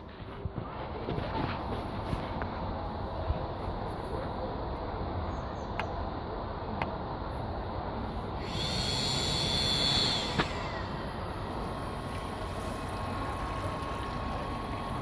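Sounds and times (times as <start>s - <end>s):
thin steady whine of fan: 0.0s - 15.0s
water heater running: 8.3s - 15.0s.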